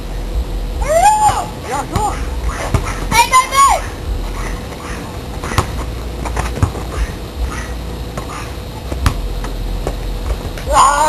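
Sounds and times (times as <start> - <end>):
people playing outside: 0.0 - 11.0
steady low rumble: 0.0 - 11.0.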